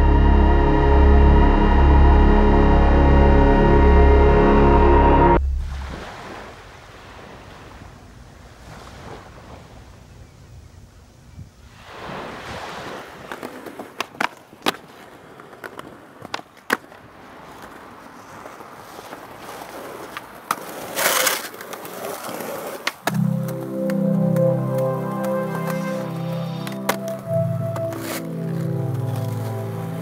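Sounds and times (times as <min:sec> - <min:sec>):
music: 0:00.0 - 0:05.6, 0:23.1 - 0:30.0
skateboard wheels rolling on concrete: 0:11.7 - 0:30.0
skateboard scrape: 0:12.8 - 0:24.0, 0:24.6 - 0:30.0
skateboard clacking: 0:13.3 - 0:29.5.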